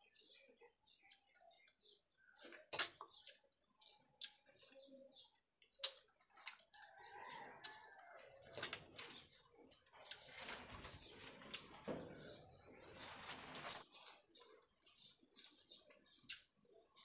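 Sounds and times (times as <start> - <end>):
person chewing wet mouth sounds: 2.6 - 4.8.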